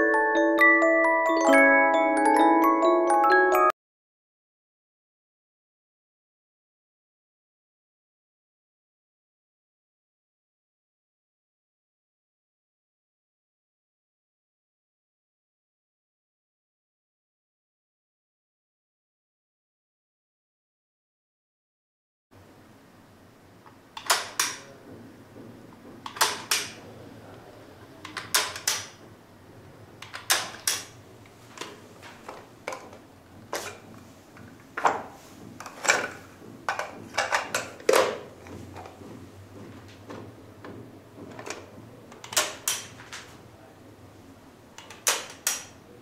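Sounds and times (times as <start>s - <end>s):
toy projector plastic clicks: 28.1s - 28.9s.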